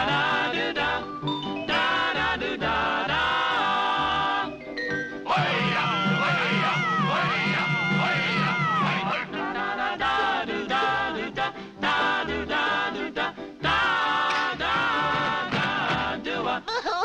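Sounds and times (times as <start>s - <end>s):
voices singing: 0.0s - 4.6s, 5.2s - 16.8s
cartoon orchestral music: 0.0s - 11.4s.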